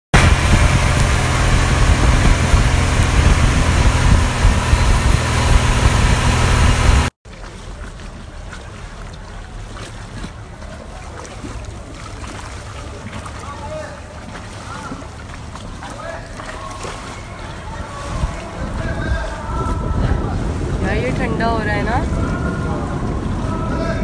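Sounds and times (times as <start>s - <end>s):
motorboat engine hum: 0.1s - 24.0s
wind and spray rushing: 0.2s - 7.1s, 17.7s - 24.0s
water lapping: 0.2s - 24.0s.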